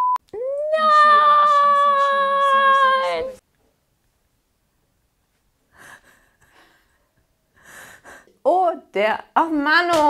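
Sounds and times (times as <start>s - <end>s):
woman holding high vocal note: 0.4s - 3.4s
woman laughing breathily: 5.7s - 8.4s.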